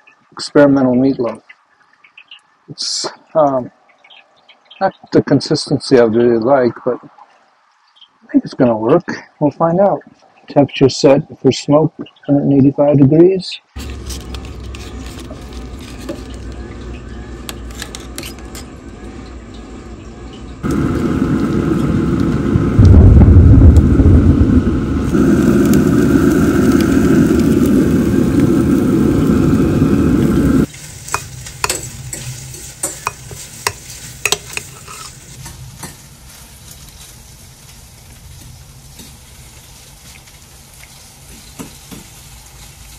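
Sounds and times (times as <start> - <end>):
metal tongs scraping grill grate: 13.8 - 19.1, 30.7 - 36.0
deep rumble: 18.8 - 30.7.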